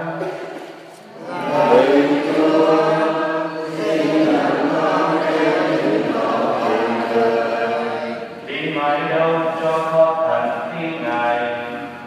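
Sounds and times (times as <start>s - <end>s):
choir singing a hymn: 1.1s - 9.6s.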